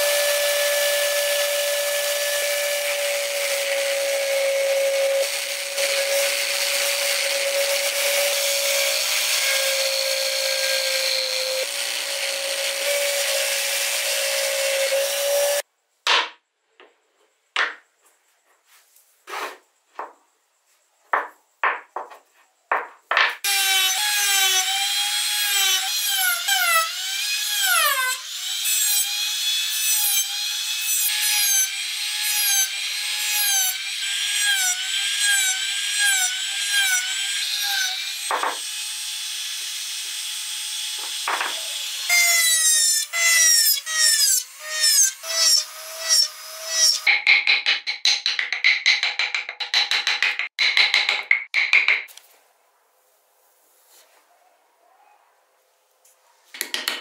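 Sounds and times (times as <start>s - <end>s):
wood scraping on wood: 18.5s - 20.1s.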